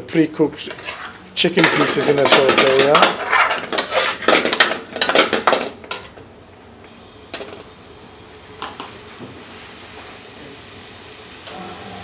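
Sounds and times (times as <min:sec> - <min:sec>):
metal spoon scraping frying pan: 0:00.6 - 0:04.6.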